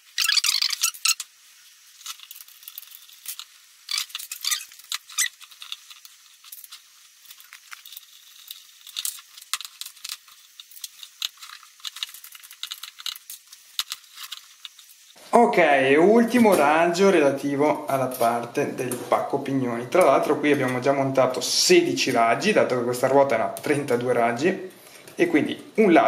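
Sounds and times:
bicycle spokes clicking and scraping: 0.0 - 15.2.

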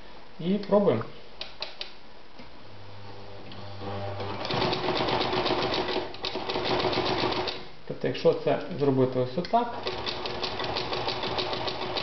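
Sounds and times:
sewing machine motor humming: 3.8 - 7.6, 9.8 - 12.0.

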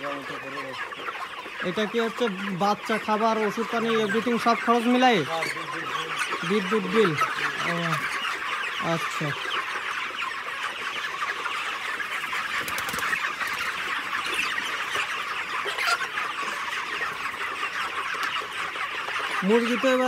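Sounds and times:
chickens peeping and clucking: 0.0 - 20.0.

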